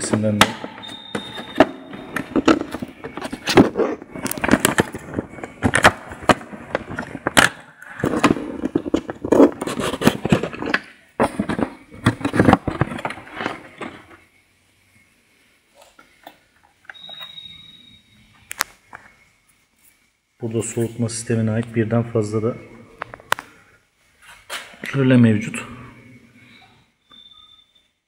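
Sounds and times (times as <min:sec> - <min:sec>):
phone handling noise: 0:00.1 - 0:14.1.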